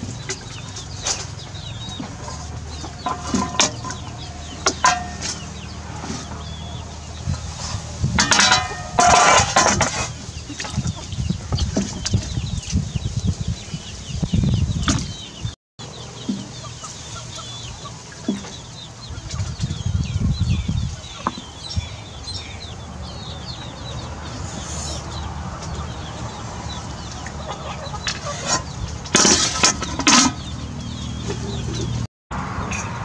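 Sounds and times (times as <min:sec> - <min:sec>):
birds chirping: 0:00.0 - 0:33.0
metal ladle scraping a pot: 0:02.0 - 0:06.3, 0:07.4 - 0:10.8, 0:28.0 - 0:30.4
loud clatter: 0:08.1 - 0:10.2.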